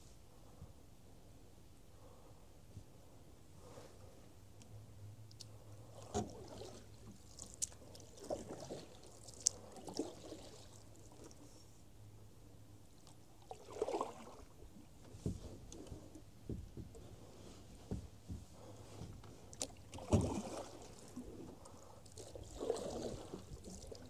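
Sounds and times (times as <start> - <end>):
paddle swishing in water: 5.8 - 11.7, 13.4 - 24.0.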